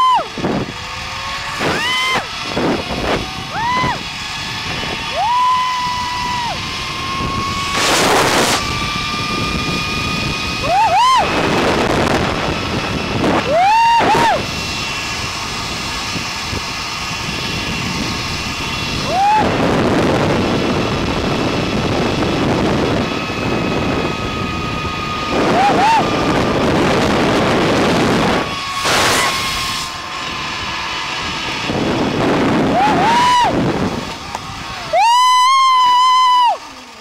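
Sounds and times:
rider whooping: 0:00.0 - 0:00.7, 0:01.3 - 0:09.4, 0:10.2 - 0:14.8, 0:18.8 - 0:20.9, 0:23.1 - 0:29.6, 0:31.2 - 0:37.0
wind rushing over microphone: 0:00.0 - 0:37.0
zipline pulley whining on cable: 0:00.0 - 0:37.0.

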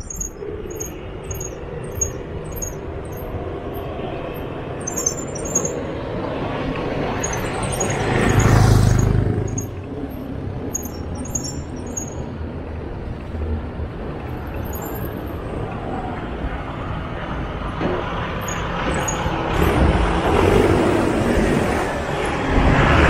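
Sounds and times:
wind and tyre noise: 0:00.0 - 0:23.0
motorcycle passing by: 0:07.1 - 0:12.1.

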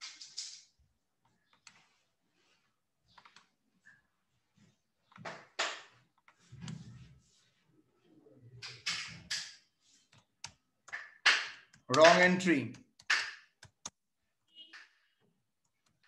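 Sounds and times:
mouse and keyboard clicks: 0:03.1 - 0:03.5, 0:08.6 - 0:14.0.

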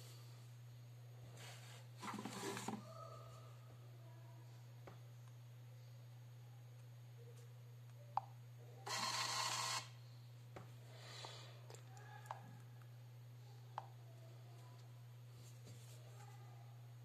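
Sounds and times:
receipt printer buzzing: 0:08.9 - 0:10.0.

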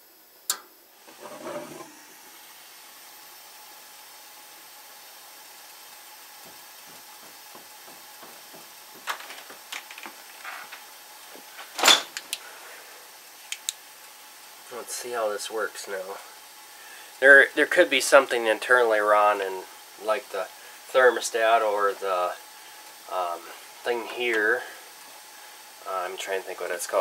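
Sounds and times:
gas flame hiss: 0:00.0 - 0:27.0
gas valve click: 0:00.5 - 0:00.8
clicks and knocks: 0:07.3 - 0:10.8.

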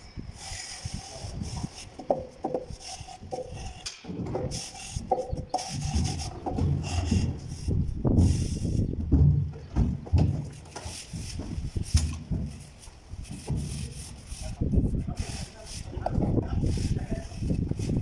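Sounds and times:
straightedge scraping wet render: 0:00.4 - 0:08.8.

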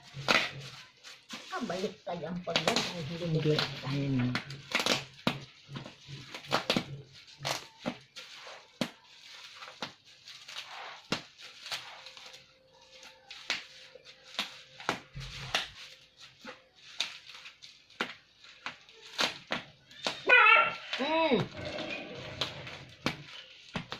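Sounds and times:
bubble wrap crinkling and snapping: 0:00.0 - 0:23.9.

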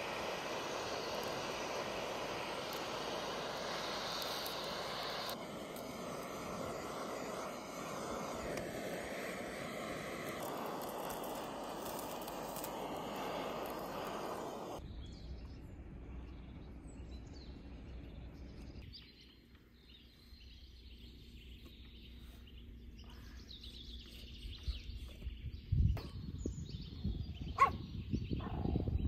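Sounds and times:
gas torch hissing: 0:00.0 - 0:14.8
birds chirping: 0:00.0 - 0:29.0.

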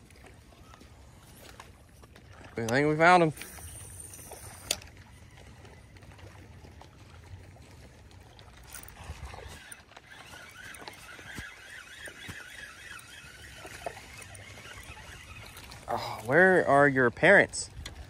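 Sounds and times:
water lapping against boat hull: 0:00.0 - 0:18.0
fishing reel cranking: 0:02.6 - 0:06.0, 0:08.4 - 0:18.0.

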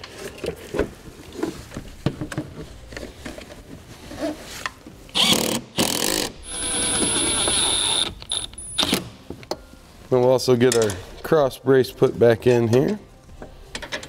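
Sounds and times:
cordless driver whine: 0:05.2 - 0:08.5.

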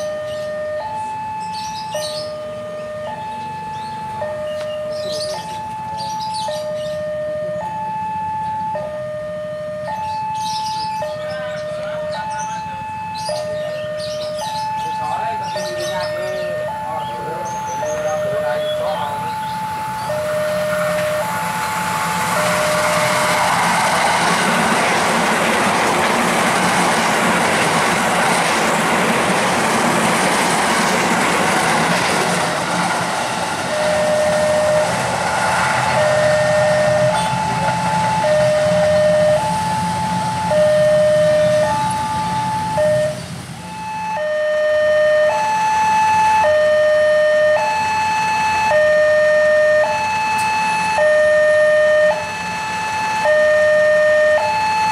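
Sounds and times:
crossing alarm two-tone ding-dong: 0:00.0 - 0:23.6, 0:33.7 - 0:35.0, 0:35.9 - 0:45.6, 0:48.7 - 0:52.3
electric train passing: 0:00.0 - 0:54.9.

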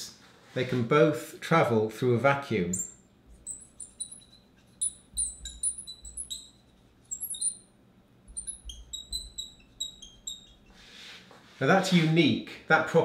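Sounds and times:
marker squeaking on glass: 0:02.8 - 0:11.0.

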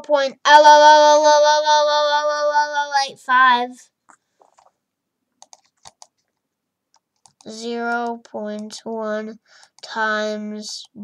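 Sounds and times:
child singing long note: 0:00.5 - 0:03.0
faint clicks: 0:05.4 - 0:08.8.

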